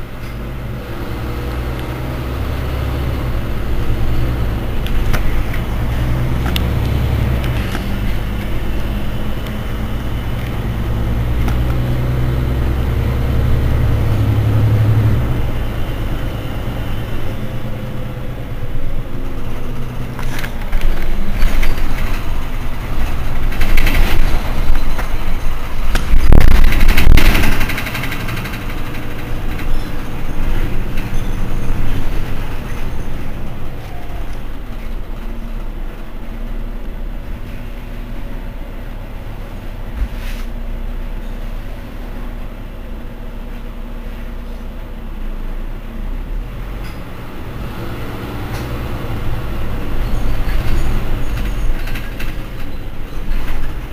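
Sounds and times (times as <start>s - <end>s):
bus engine idling: 0.0s - 53.9s.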